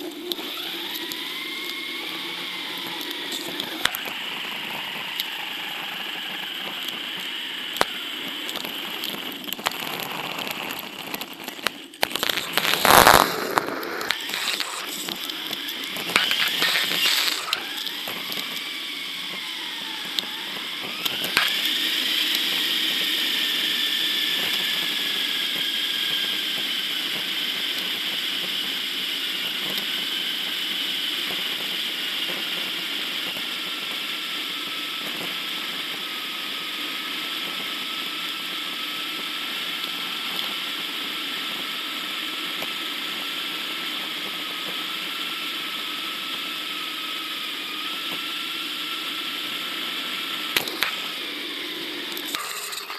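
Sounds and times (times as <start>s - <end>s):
whining tone: 0.0s - 27.6s, 46.1s - 52.9s.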